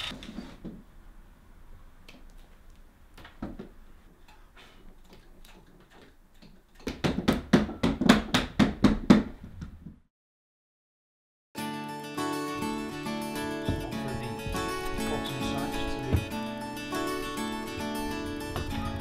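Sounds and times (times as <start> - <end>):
acoustic guitar music: 11.6 - 19.0.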